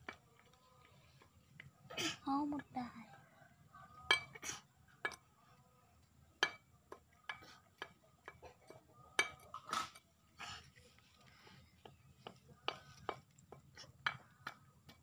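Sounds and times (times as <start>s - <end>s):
squirrel gnawing coconut: 0.0s - 2.2s.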